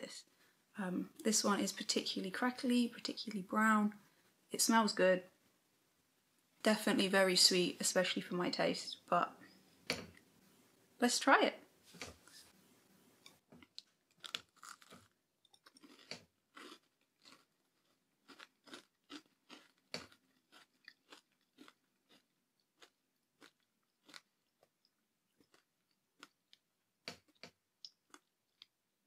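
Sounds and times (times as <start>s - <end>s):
person crunching a cookie: 13.6s - 28.8s.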